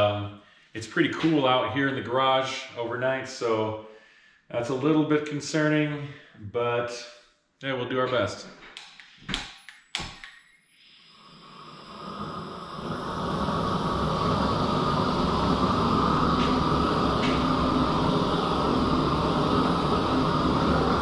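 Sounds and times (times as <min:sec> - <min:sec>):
gas torch burning: 0:09.2 - 0:21.0.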